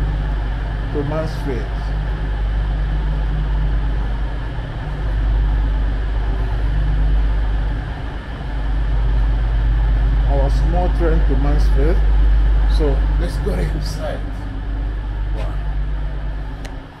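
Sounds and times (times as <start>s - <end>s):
diesel train engine idling: 0.0s - 17.0s.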